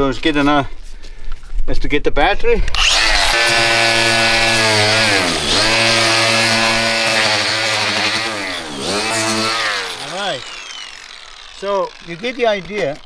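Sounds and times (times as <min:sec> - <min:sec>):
angle grinder wire brush whine: 0:02.7 - 0:13.0.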